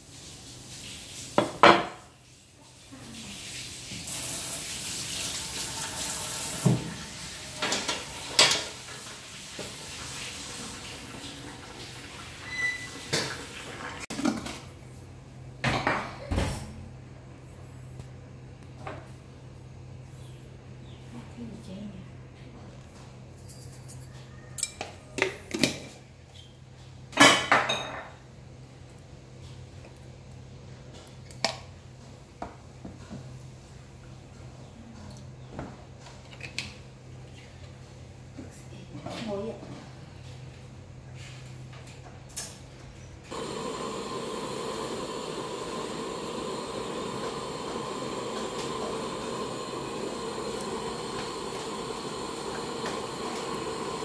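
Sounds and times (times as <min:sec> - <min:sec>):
steady hiss: 0:00.0 - 0:12.2, 0:43.3 - 0:54.0
kitchenware clattering: 0:05.8 - 0:09.0, 0:27.1 - 0:28.2.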